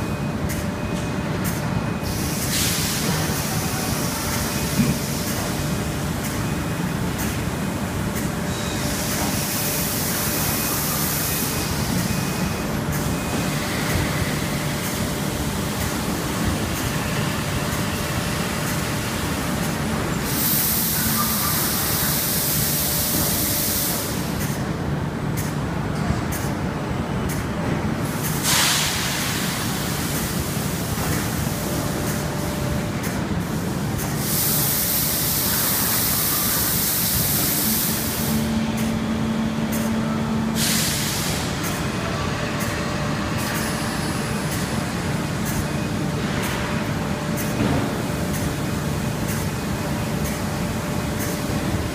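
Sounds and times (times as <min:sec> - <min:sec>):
machinery humming: 0:00.0 - 0:51.9
compressed air hiss: 0:02.0 - 0:04.2, 0:20.2 - 0:24.3, 0:28.2 - 0:30.6, 0:33.4 - 0:38.4, 0:40.6 - 0:41.6.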